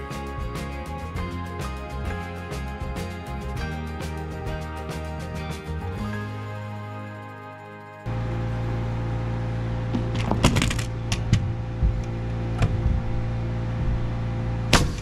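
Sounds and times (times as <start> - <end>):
low machine hum: 8.0 - 15.0
nail gun firing: 14.7 - 15.0.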